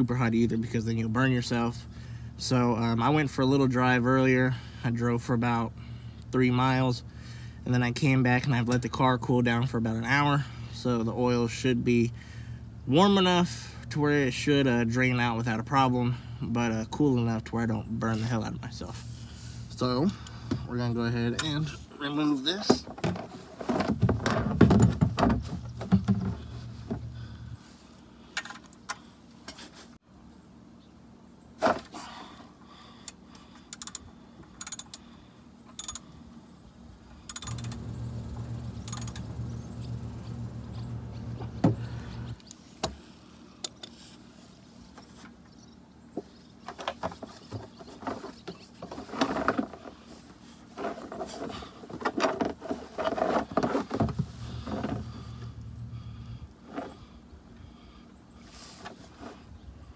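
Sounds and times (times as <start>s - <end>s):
ratchet clicks and metallic taps: 33.0s - 35.0s, 35.7s - 36.0s, 37.3s - 37.8s, 38.8s - 39.3s
low hum: 34.6s - 42.6s, 53.5s - 58.4s.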